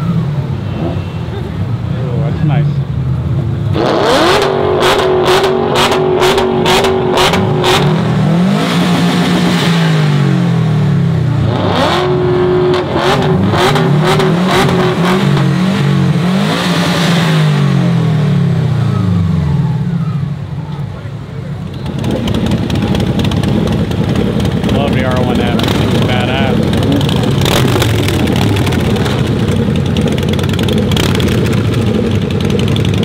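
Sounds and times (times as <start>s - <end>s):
car engine revving: 3.4s - 20.2s, 21.6s - 33.0s
sharp exhaust pops: 21.6s - 33.0s.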